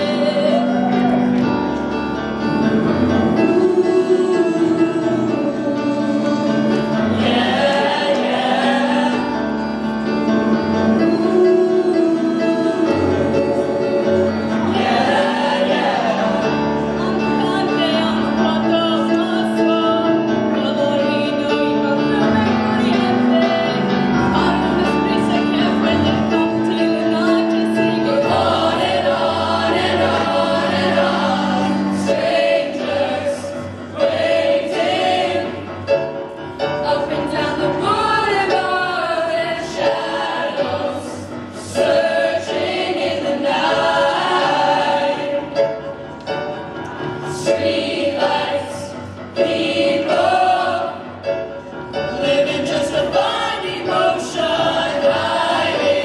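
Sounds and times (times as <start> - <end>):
group singing a pop-rock song: 0.0 - 1.6, 3.3 - 9.9, 10.9 - 45.9, 47.2 - 56.0
piano chords: 0.0 - 56.0.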